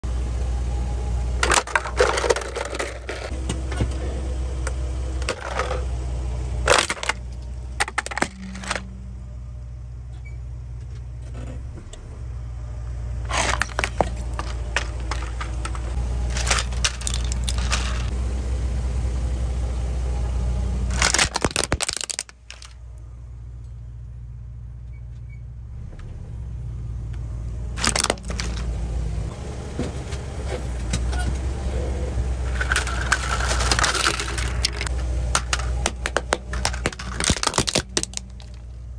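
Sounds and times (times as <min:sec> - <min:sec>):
car engine rumble: 0:00.0 - 0:38.9
plastic toys cracking under tyre: 0:01.4 - 0:03.3, 0:06.7 - 0:08.8, 0:13.3 - 0:18.1, 0:20.9 - 0:22.8, 0:27.8 - 0:28.7, 0:32.5 - 0:38.7.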